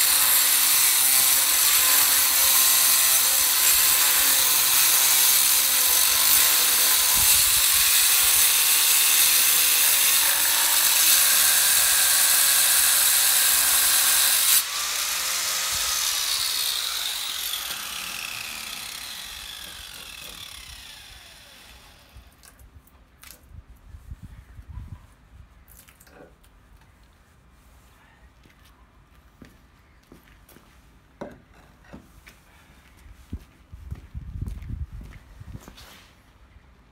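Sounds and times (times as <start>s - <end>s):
angle grinder cutting stone: 0.0s - 22.3s.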